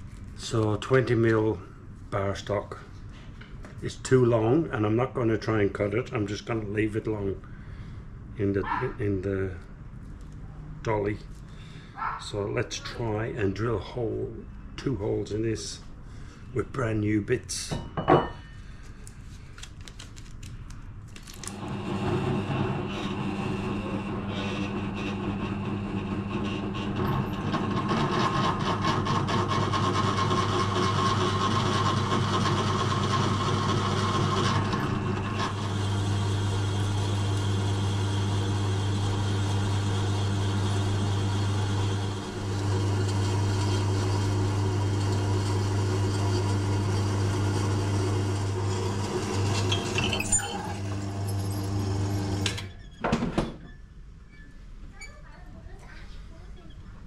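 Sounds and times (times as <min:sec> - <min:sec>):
drill press cutting steel: 0:21.5 - 0:52.7.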